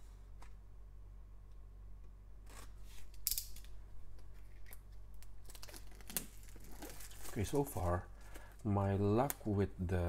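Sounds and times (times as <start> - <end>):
plastic wrap crinkling: 4.2 - 9.5.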